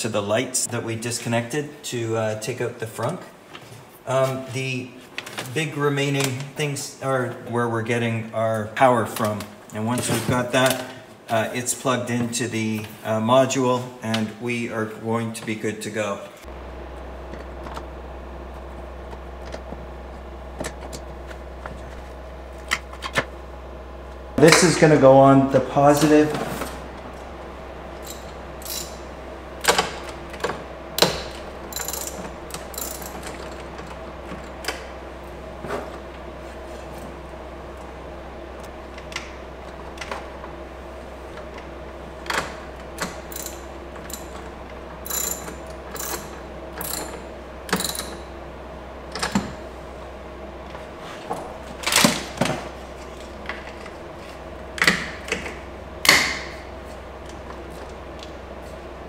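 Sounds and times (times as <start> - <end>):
steady low hum: 0.0 - 59.0
clicks and metallic rattles: 29.6 - 34.9, 41.3 - 48.3.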